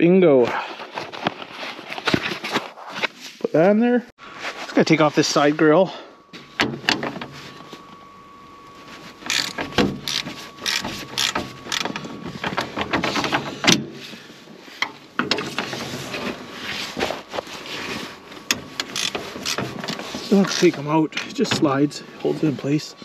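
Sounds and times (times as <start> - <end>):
socket ratchet clicking: 18.8 - 19.6.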